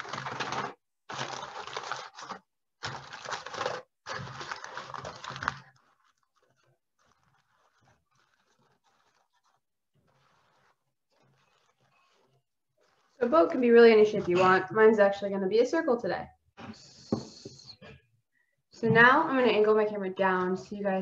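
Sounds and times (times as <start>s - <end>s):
aluminium foil crinkling: 0.0s - 14.1s.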